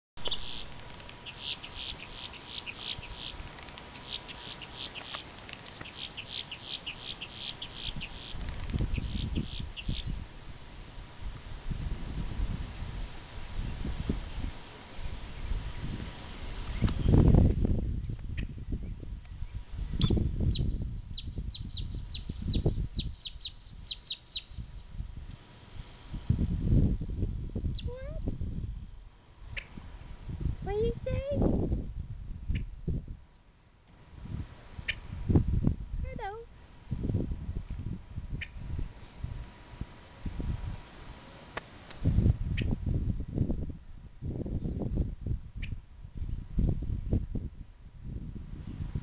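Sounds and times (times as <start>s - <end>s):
grackle calling: 0.2s - 3.4s, 4.0s - 10.1s, 23.0s - 24.6s
wind rumble on microphone: 6.7s - 33.3s, 34.0s - 49.0s.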